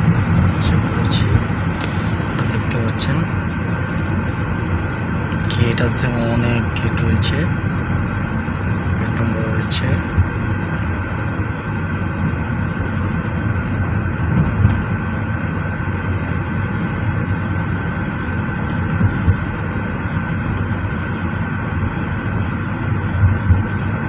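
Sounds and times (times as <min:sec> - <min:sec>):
car cabin road rumble: 0:00.0 - 0:24.0
faint steady whine: 0:00.0 - 0:24.0
soft low thumps: 0:18.9 - 0:19.6, 0:23.1 - 0:23.9.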